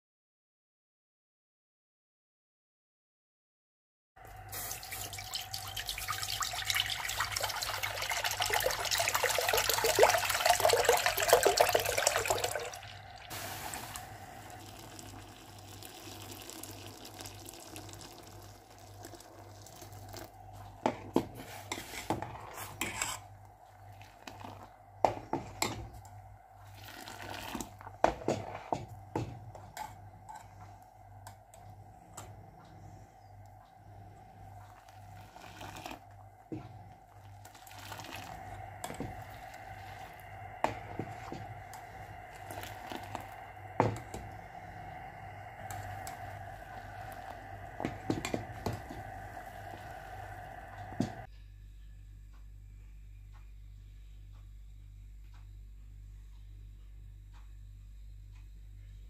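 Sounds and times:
quiet liquid pouring: 4.3s - 28.5s, 34.0s - 51.3s
liquid pouring through strainer: 4.5s - 20.4s, 26.6s - 27.9s, 34.7s - 44.3s, 45.5s - 51.2s
ladle stirring in metal pot: 20.9s - 23.3s, 34.7s - 44.5s.

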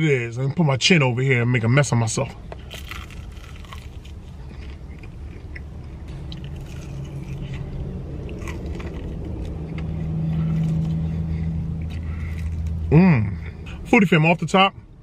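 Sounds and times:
closed-mouth humming: 2.4s - 14.0s
person chewing crunchy chicken: 2.5s - 12.9s.

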